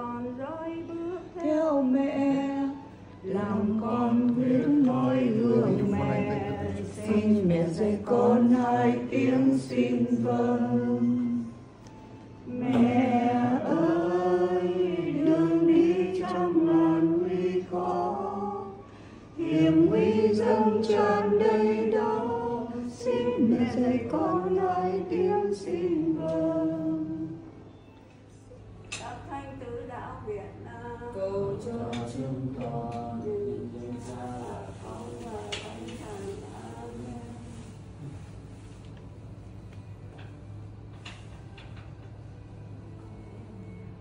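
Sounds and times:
group chanting a prayer: 3.2 - 11.6, 12.5 - 27.4, 31.1 - 38.4.

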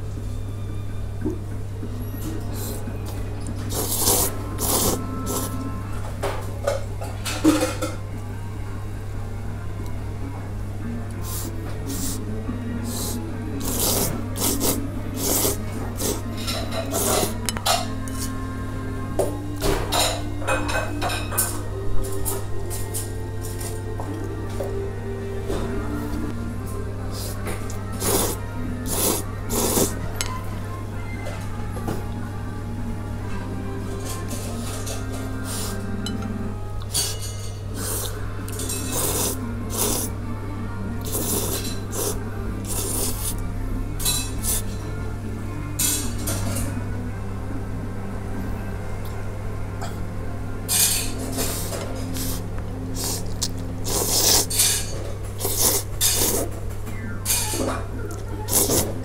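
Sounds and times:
background music: 0.0 - 59.0
noodles being slurped: 3.6 - 5.6, 12.9 - 17.4, 27.1 - 30.0, 37.8 - 40.1, 41.0 - 43.4, 51.4 - 54.7, 55.4 - 56.5, 58.5 - 59.0.

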